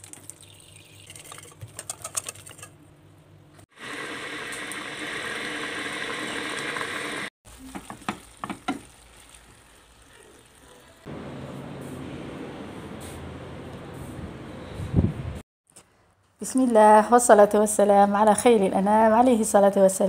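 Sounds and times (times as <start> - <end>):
food sizzling in frying pan: 3.7 - 11.1.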